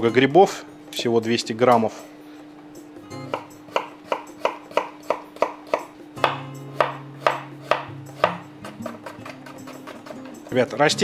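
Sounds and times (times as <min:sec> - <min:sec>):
background music with held tone: 0:00.0 - 0:11.0
knife chopping on wooden board: 0:03.3 - 0:10.5.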